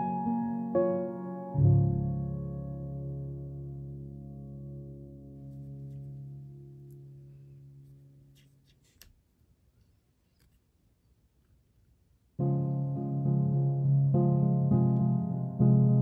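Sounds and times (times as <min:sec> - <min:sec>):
piano music: 0:00.0 - 0:08.3, 0:12.4 - 0:16.0.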